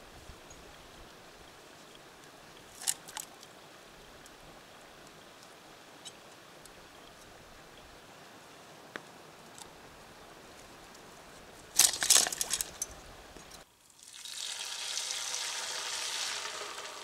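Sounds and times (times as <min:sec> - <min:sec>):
faint steady hiss: 0:00.0 - 0:17.0
metal trap chain clinking: 0:11.8 - 0:13.6.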